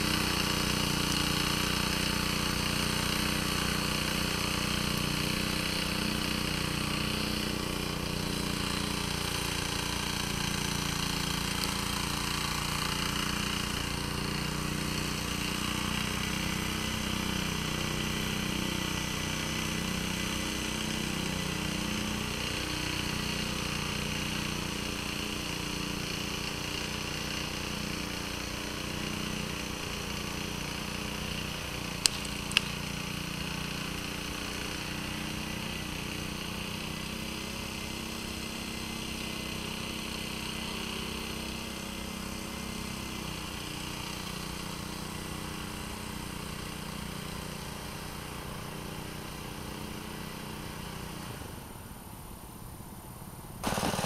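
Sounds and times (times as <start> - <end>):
tractor engine running: 0.0 - 51.5, 53.6 - 54.0
sharp clicks: 32.0 - 32.8.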